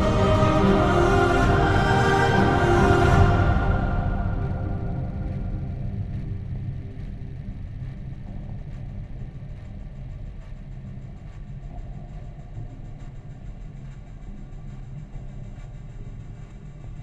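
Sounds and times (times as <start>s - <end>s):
low rumbling drone: 0.0s - 10.0s.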